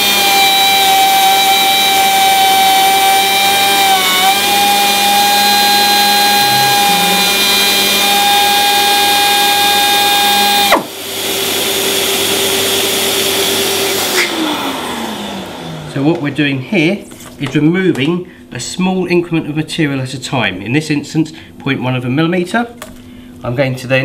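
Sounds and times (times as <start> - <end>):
air sanding tool whine: 0.0 - 17.0
dust extractor running: 0.0 - 17.0.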